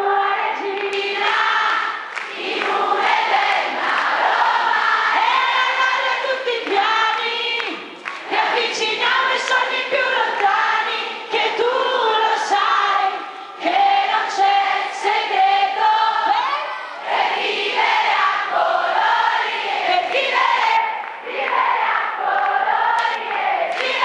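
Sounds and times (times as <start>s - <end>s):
woman singing into microphone: 0.0s - 2.0s, 4.7s - 17.0s
crowd singing: 0.0s - 24.0s.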